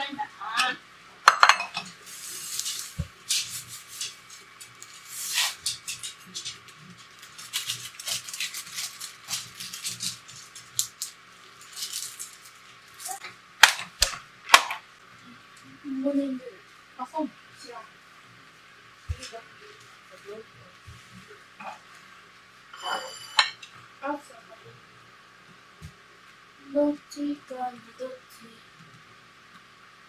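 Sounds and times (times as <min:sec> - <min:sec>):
glass dish clinking on counter: 0:01.3 - 0:01.9, 0:22.8 - 0:23.6
breadcrumbs rustling: 0:02.0 - 0:13.2
plastic bag crinkling: 0:06.8 - 0:13.2.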